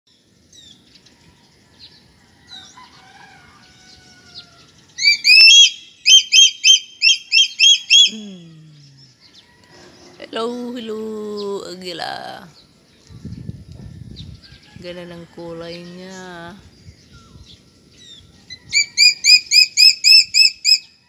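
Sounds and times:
small birds chirping: 2.6 - 20.9
eagle yelping call: 4.2 - 8.2, 18.5 - 21.0.

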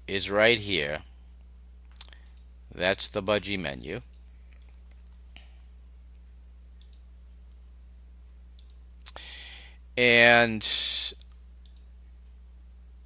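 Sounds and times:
steady low hum: 0.0 - 13.0
computer mouse clicks: 1.9 - 2.5, 6.8 - 7.6, 8.6 - 8.8, 11.2 - 11.9
short breath: 9.1 - 9.8.

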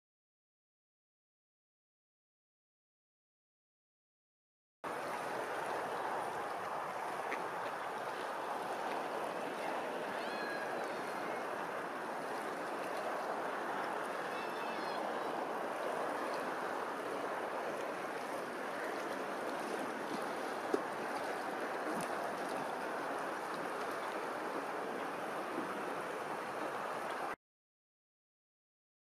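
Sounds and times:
open water wash: 4.8 - 27.4
wind: 4.8 - 27.4
faint high bird call: 10.1 - 11.5, 14.3 - 15.4.

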